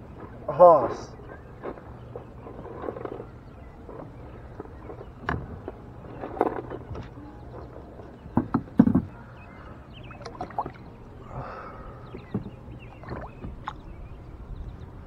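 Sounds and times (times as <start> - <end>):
water sloshing and gurgling: 1.2 - 15.0
knocks against plastic kayak: 8.3 - 9.2.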